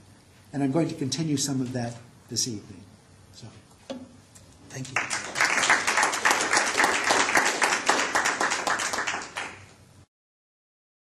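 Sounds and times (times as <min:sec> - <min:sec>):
audience applauding: 0:04.8 - 0:09.8.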